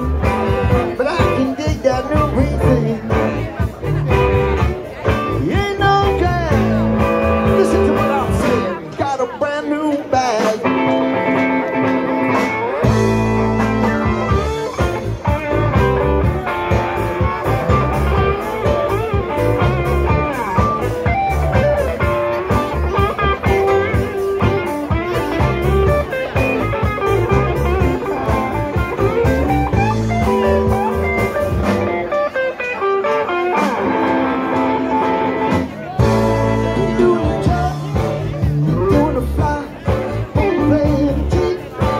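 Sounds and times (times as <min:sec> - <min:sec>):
bass guitar: 0:00.0 - 0:41.9
drums: 0:00.0 - 0:41.9
electric guitar: 0:00.0 - 0:41.9.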